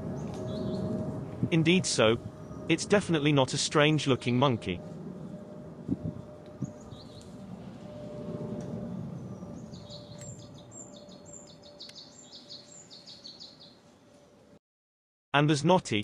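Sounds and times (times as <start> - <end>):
low background rumble: 0.0 - 10.8
small birds chirping: 0.2 - 1.0, 6.6 - 7.4, 9.1 - 13.8.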